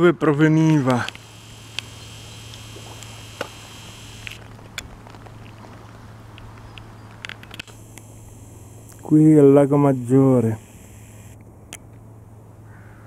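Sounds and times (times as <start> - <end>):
faint background hiss: 0.1 - 12.7
faint ticks: 0.7 - 5.6, 6.3 - 9.1
low hum: 0.8 - 12.7.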